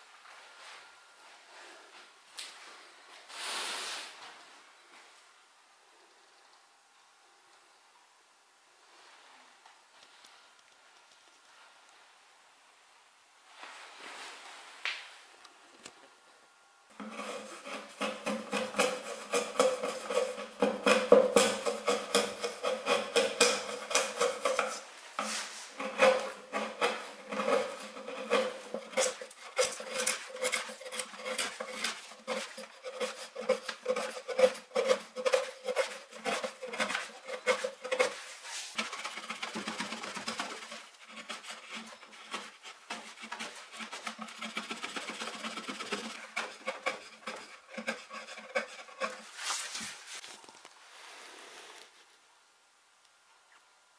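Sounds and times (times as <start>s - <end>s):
wood chisel scraping: 17.0s - 52.1s.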